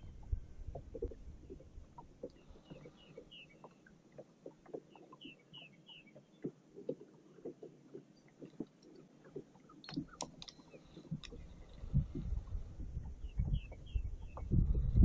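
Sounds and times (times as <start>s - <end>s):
wind rumbling on microphone: 0.0s - 2.7s, 9.8s - 15.0s
waves slapping a boat hull: 0.0s - 15.0s.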